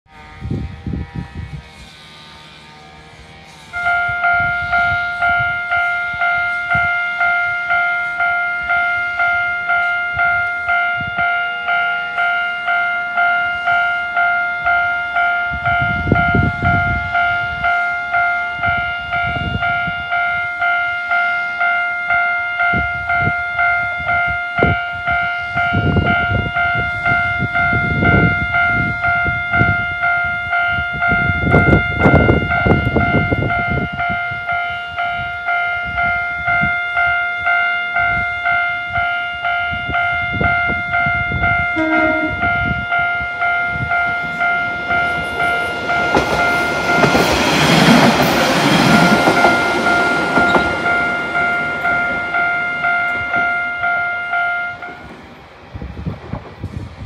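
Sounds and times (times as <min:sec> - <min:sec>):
train passing: 0:00.1 - 0:57.0
level-crossing electronic bell ringing: 0:03.8 - 0:55.1.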